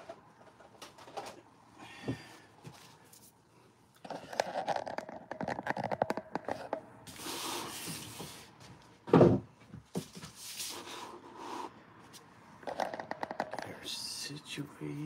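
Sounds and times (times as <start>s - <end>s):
clicks and taps: 12.7s - 13.9s.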